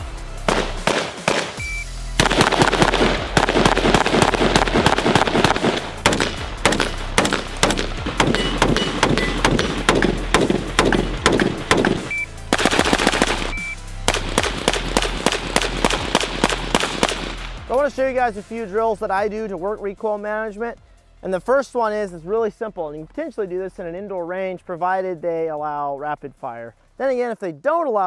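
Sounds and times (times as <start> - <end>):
background music with bass: 0.0 - 28.0
rapid rifle fire: 0.5 - 1.6, 2.2 - 17.6.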